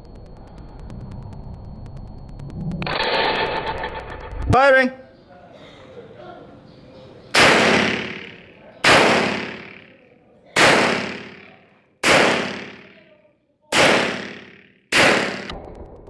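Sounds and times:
pistol shots echoing: 7.4s - 10.0s, 10.6s - 13.0s, 13.7s - 15.5s.

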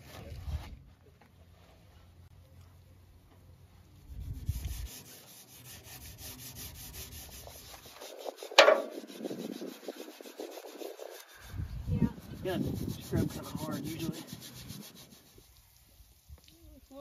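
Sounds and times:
steel wool scrubbing chrome: 3.6s - 17.0s.

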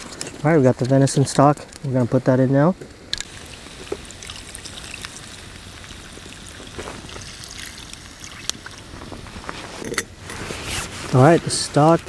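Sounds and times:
campfire crackling: 0.0s - 12.0s
liquid pouring into a skillet: 3.2s - 9.7s.

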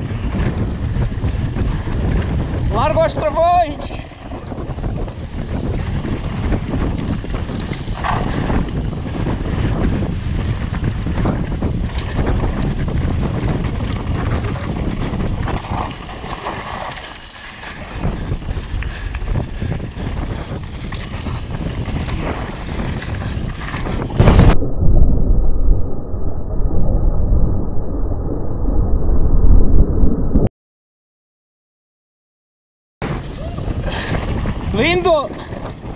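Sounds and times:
bike tyres rumbling on trail: 0.0s - 24.6s, 33.0s - 35.9s
wind buffeting microphone: 0.0s - 25.9s, 33.0s - 35.9s
bike knocks and rattles: 4.1s - 17.2s, 19.3s - 24.2s
loud thump: 24.2s - 24.6s.

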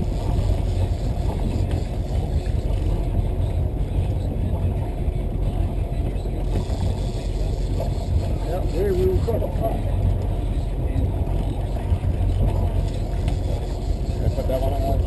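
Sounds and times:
boat engine rumbling: 0.0s - 15.0s.

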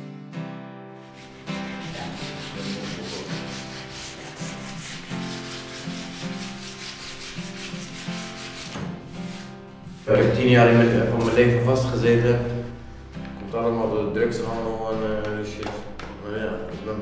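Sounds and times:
background music: 0.0s - 17.0s
hand sanding strokes: 1.0s - 11.6s.

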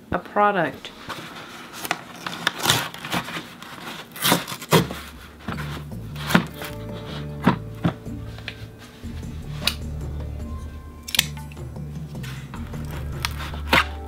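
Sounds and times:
cardboard tear strip ripping: 1.7s - 6.7s, 12.7s - 14.0s
soft background music: 4.9s - 14.0s.

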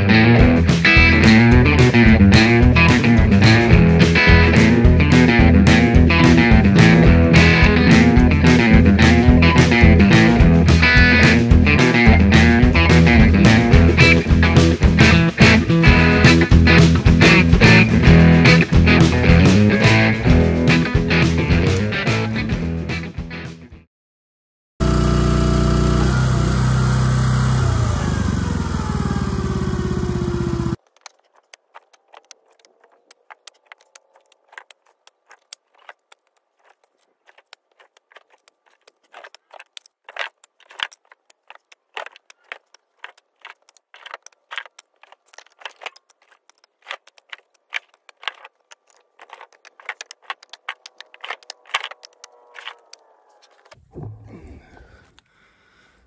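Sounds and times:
faint engine hum: 24.8s - 30.8s
firewood pieces knocking together: 30.8s - 53.8s.

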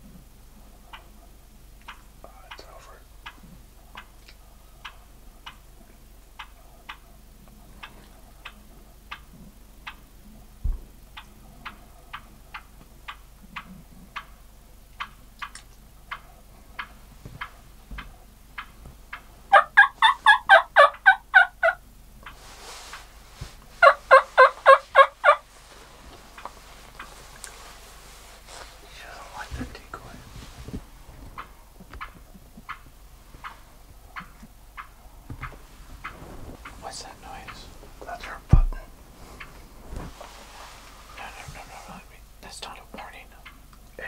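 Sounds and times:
faint regular ticking: 1.7s - 10.2s
wild turkey gobbling: 18.2s - 23.1s, 23.8s - 27.2s, 31.4s - 38.5s.

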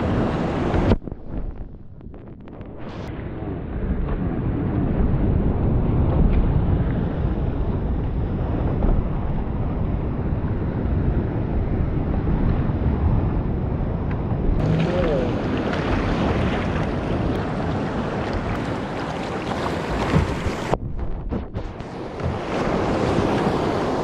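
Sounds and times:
wind rumbling on microphone: 0.0s - 24.0s
water splashing at microphone: 14.6s - 24.0s
waves breaking against rocks: 14.6s - 24.0s.

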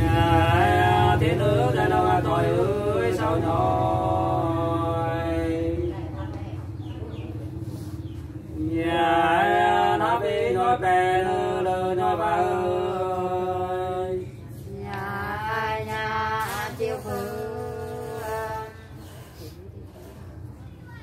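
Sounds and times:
man singing unaccompanied: 0.0s - 5.9s, 8.6s - 14.3s.

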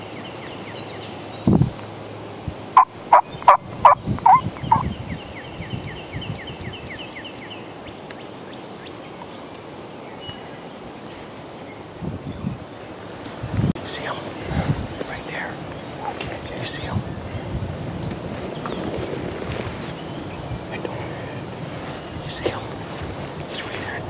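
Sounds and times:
wild turkey calling: 2.8s - 4.9s.

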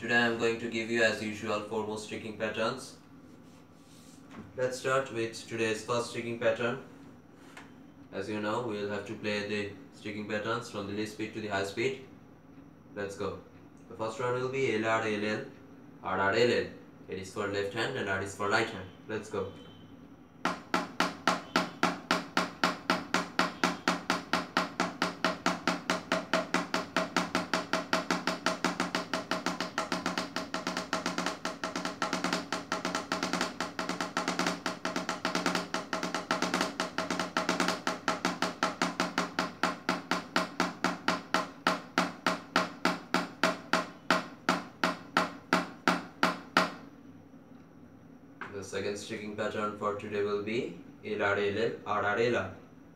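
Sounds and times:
drumsticks tapping on practice pads: 20.5s - 46.8s.

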